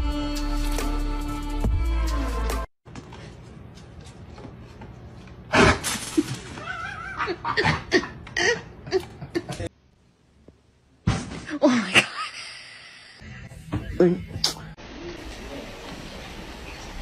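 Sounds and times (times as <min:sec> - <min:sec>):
people laughing: 0:06.6 - 0:09.7.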